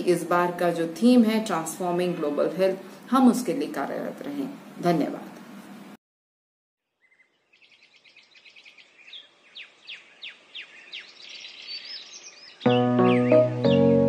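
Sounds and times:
bird chirping high calls: 7.0s - 13.9s.

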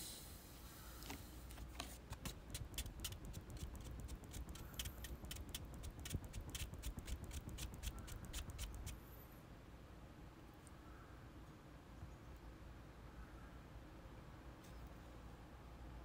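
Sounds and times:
low steady hum: 0.0s - 16.0s
quick light taps: 1.0s - 9.0s.

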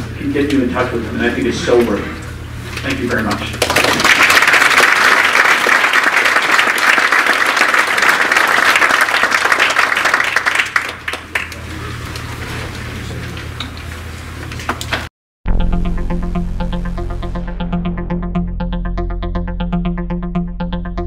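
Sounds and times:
audience applauding: 3.6s - 11.9s
low steady hum: 15.5s - 21.0s.

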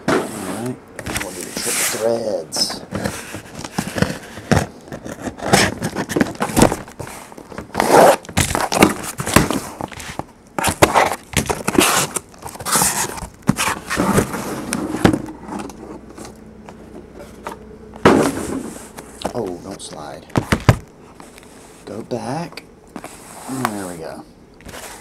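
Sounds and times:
cardboard boxes sliding on table: 0.0s - 8.2s, 9.1s - 16.0s, 18.1s - 19.0s.

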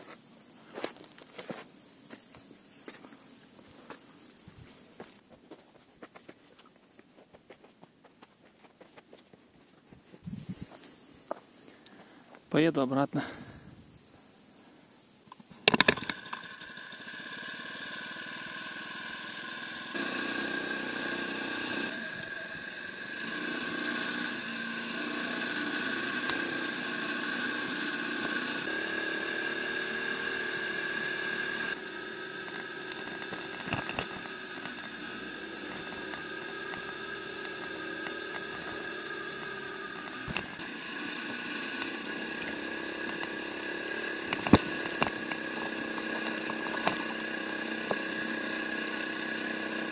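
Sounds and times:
small engine running: 15.6s - 49.9s.

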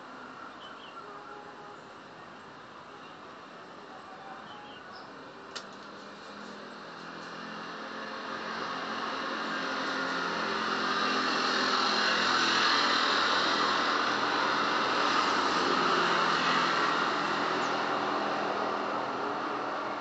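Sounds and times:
motorcycle passing: 5.9s - 20.0s.

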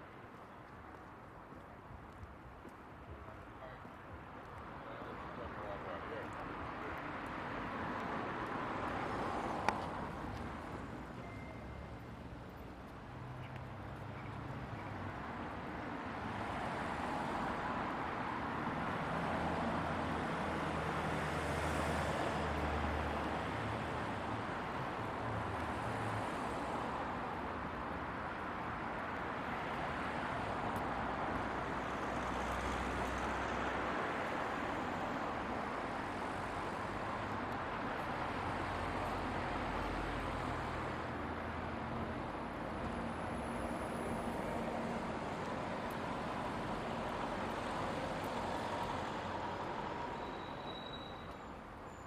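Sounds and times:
street ambience hiss: 0.0s - 52.0s.

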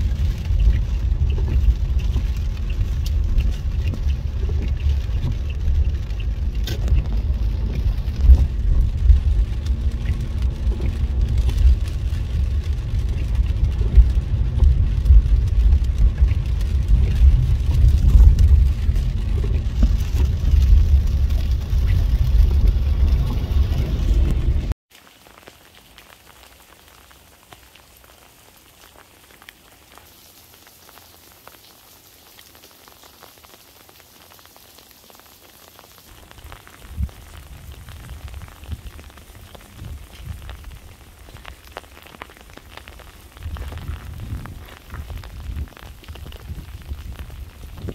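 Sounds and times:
uneven low rumble: 0.0s - 24.8s, 36.1s - 47.9s
freezing rain pattering: 0.0s - 47.9s.

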